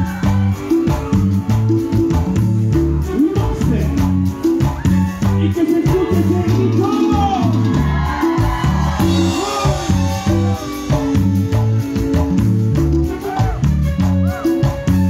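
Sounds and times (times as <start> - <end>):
live cumbia band: 0.0 - 15.0.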